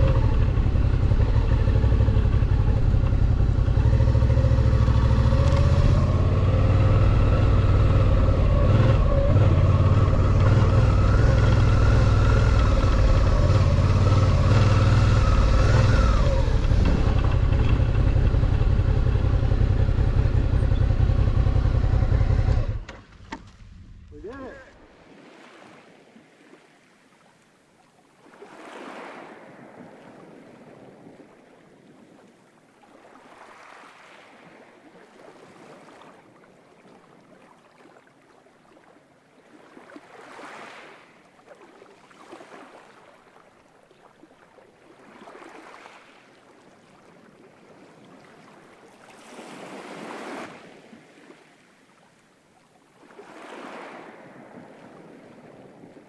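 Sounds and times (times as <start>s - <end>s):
small waves washing on rocky shore: 24.2s - 56.0s.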